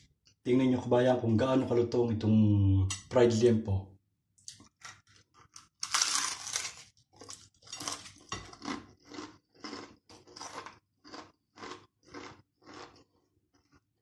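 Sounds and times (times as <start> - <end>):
crunching chews: 4.5 - 13.9.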